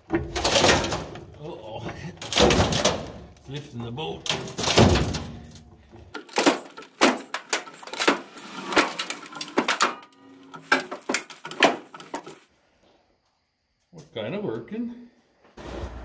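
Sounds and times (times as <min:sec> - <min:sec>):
metallic clanks and clicks: 0:00.0 - 0:12.4.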